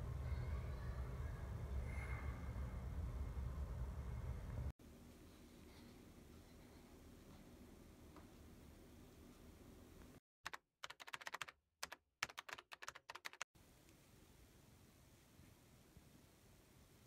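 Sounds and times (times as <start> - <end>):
rapid light sharp clicks: 10.5 - 13.5.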